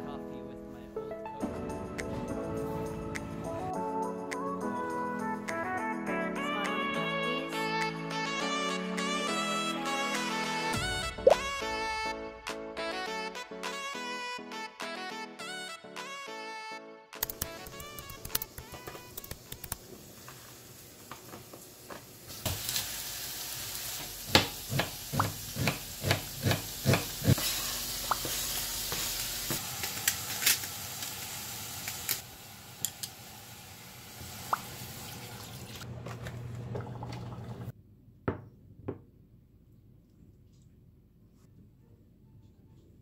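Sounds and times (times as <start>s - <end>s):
curry sizzling in pot: 19.7s - 35.8s.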